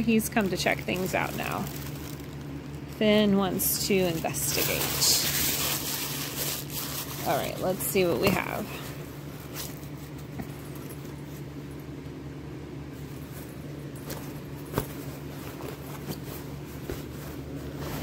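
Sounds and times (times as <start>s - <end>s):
fabric backpack rustling: 0.4s - 3.0s, 3.6s - 11.5s, 12.9s - 18.0s.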